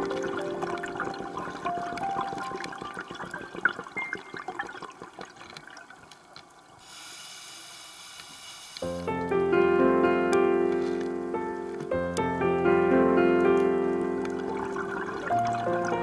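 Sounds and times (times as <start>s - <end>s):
background music: 0.0s - 4.3s, 8.9s - 16.0s
underwater bubbling and crackling: 0.0s - 7.1s, 13.4s - 16.0s
steady hiss: 6.7s - 13.2s.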